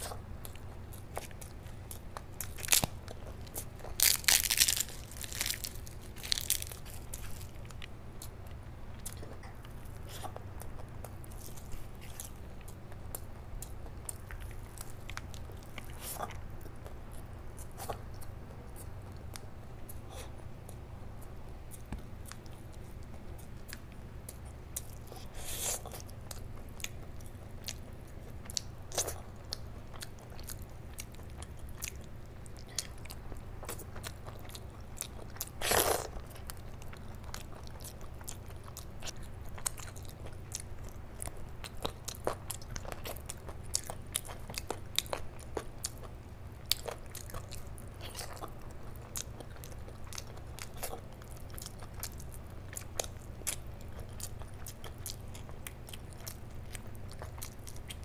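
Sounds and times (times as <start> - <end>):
hands pulling food apart: 2.4 - 7.8
chewing and wet mouth clicks: 46.7 - 58.0.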